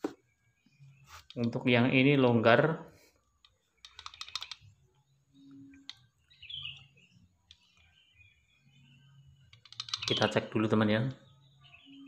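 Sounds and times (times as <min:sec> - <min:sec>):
bird chirping: 0:00.0 - 0:12.0
plastic clicking and rattling: 0:03.4 - 0:04.7, 0:09.5 - 0:10.3.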